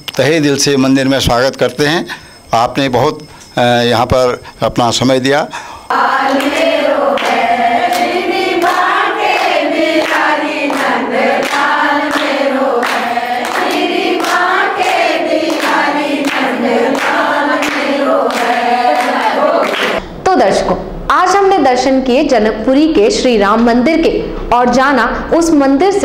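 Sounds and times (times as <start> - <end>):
steady handclaps: 5.9 - 20.0
women singing in unison: 5.9 - 20.0.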